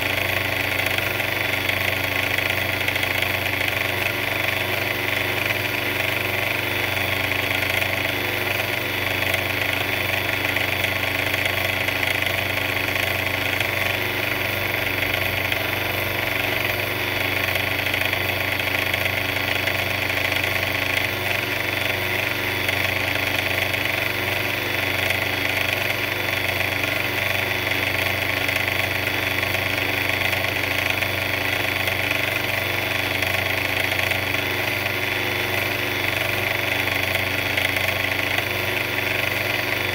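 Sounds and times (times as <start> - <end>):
mixer engine droning: 0.0 - 39.9.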